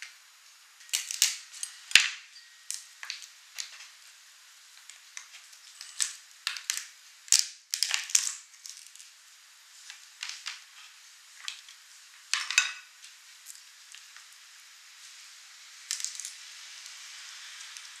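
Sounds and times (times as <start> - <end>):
crab shell cracking: 0.8 - 3.9, 4.8 - 9.1.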